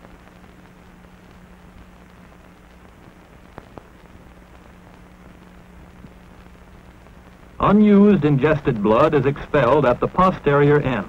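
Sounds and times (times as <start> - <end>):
film soundtrack hiss and hum: 0.0 - 11.0
faint clicks: 0.4 - 7.5.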